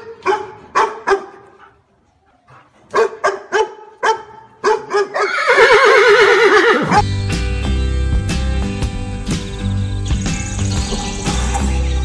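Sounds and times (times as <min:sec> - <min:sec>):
dog barking: 0:00.0 - 0:01.7, 0:02.9 - 0:05.3.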